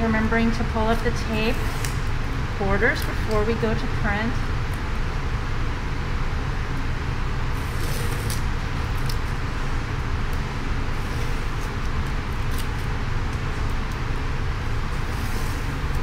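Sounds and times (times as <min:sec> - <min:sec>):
low background rumble: 0:00.0 - 0:16.0
tape peeling crackles: 0:07.5 - 0:14.1.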